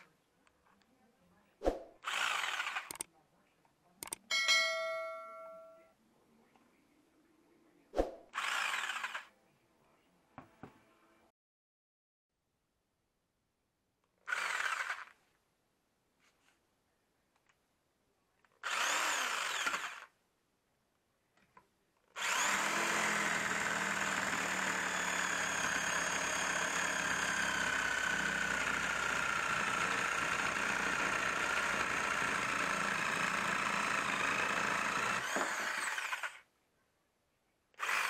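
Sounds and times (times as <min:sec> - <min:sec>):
electric jigsaw cutting wood: 0:02.0 - 0:03.0, 0:08.4 - 0:09.3, 0:14.2 - 0:15.2, 0:18.6 - 0:20.1, 0:22.2 - 0:36.4, 0:37.8 - 0:38.0.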